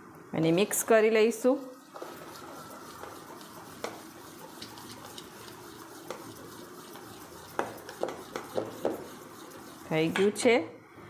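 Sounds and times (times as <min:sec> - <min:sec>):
spoon stirring thick batter: 0:00.6 - 0:10.5.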